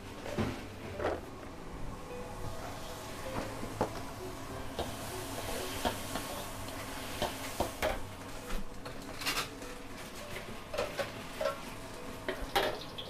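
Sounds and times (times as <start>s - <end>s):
food sizzling: 2.3s - 13.0s
metal utensils clanking on a wok: 10.7s - 11.7s, 12.3s - 13.0s.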